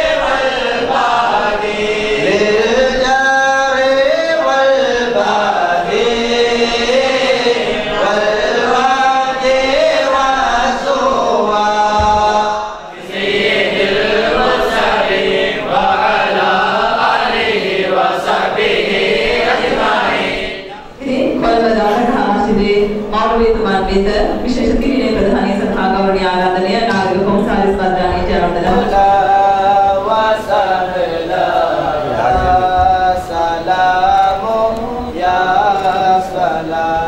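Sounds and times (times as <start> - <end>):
men chanting: 0.0 - 22.6, 27.0 - 37.0
woman speaking: 21.0 - 28.9.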